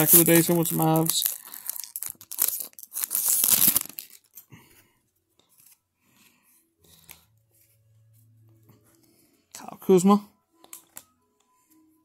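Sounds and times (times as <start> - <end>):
foil wrapper tearing and crinkling: 0.0 - 4.4
faint rustling of cards: 0.0 - 10.0.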